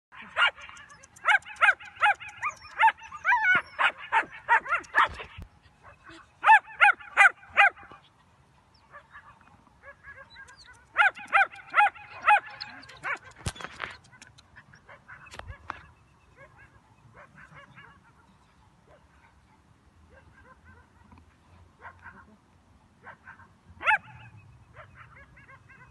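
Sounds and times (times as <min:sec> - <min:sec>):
puppies yipping: 0:00.2 - 0:08.0, 0:09.0 - 0:15.9.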